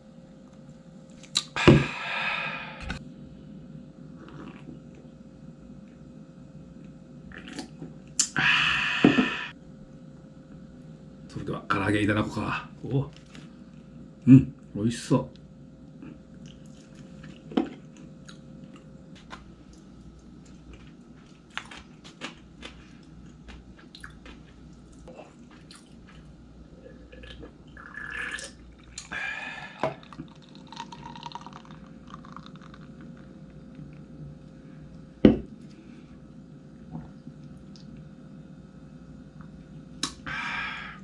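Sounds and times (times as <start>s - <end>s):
soft chewing: 16.0s - 27.5s
beer pouring into glass fizzing: 27.2s - 29.0s, 29.8s - 33.2s.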